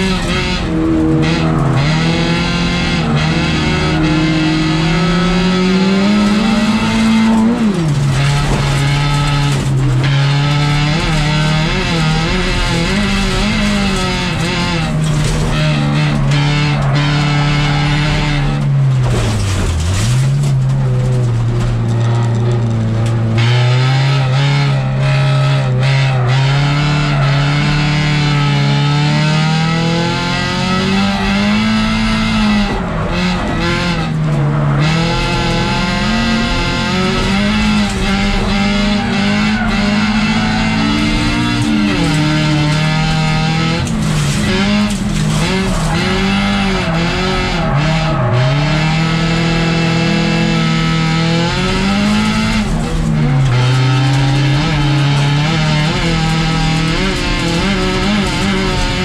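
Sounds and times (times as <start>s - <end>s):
racing car engine revving: 0.0s - 59.0s
tyres skidding on gravel: 5.8s - 23.3s, 32.7s - 49.0s, 51.3s - 59.0s.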